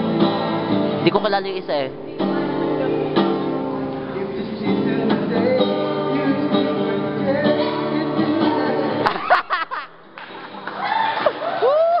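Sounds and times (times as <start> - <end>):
acoustic guitar strumming: 0.0 - 11.6
young men singing: 2.1 - 9.5.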